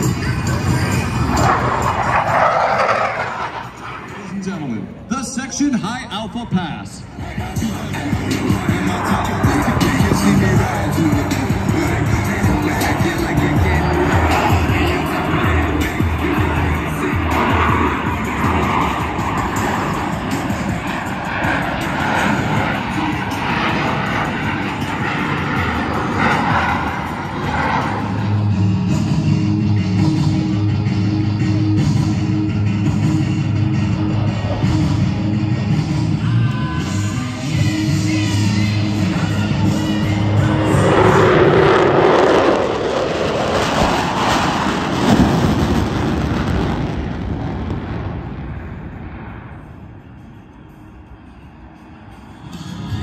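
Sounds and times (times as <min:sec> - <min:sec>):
jet engine roar: 0:00.0 - 0:53.0
rock music with bass line: 0:07.4 - 0:42.0.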